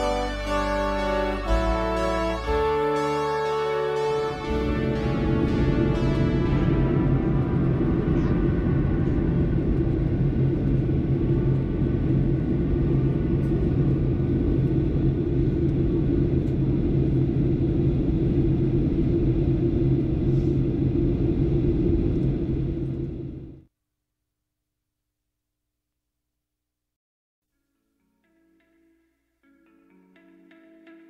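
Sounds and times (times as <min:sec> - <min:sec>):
airplane cabin rumble: 0:04.5 - 0:23.6.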